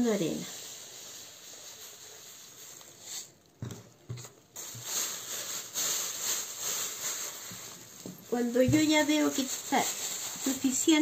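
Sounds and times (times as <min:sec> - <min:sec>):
plastic bags rustling: 0:00.0 - 0:03.4, 0:04.2 - 0:11.0
sand trickling into plastic bags: 0:00.0 - 0:03.4, 0:04.5 - 0:11.0.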